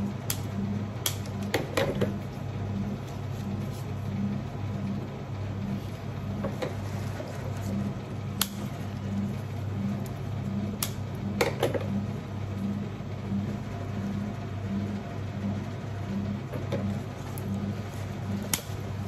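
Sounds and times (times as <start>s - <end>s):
low pulsing hum: 0.0s - 19.0s
scissors snipping stems: 18.5s - 18.8s.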